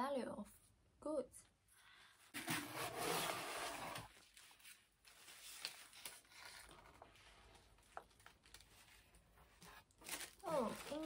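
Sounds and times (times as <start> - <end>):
cardboard box rustling and scraping: 2.3 - 4.2.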